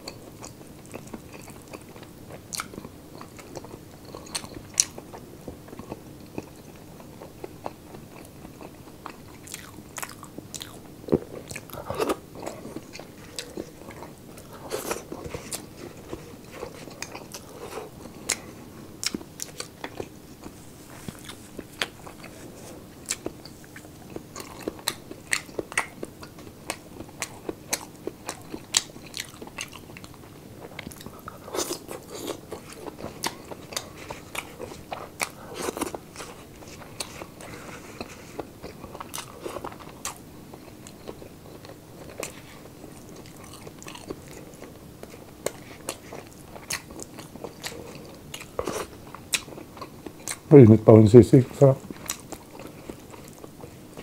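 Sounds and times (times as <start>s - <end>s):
chewing and crunching: 0.0s - 50.6s, 51.4s - 54.0s
faint steady hum: 0.0s - 54.0s.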